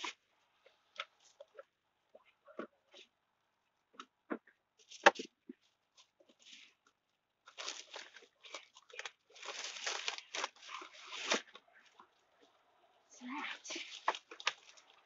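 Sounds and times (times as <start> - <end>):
crinkling and rustling: 0.0 - 15.0.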